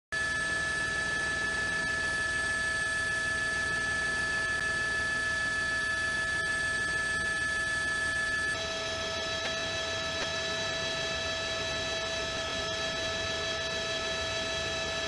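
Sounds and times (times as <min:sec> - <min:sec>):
electrical hum and whine: 0:00.2 - 0:15.0.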